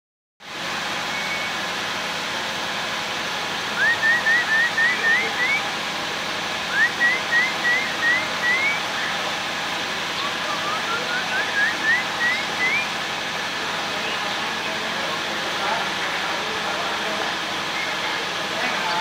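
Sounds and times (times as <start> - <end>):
bird singing rising whistles: 1.1 - 1.6, 3.8 - 5.6, 6.7 - 9.2, 10.2 - 12.9.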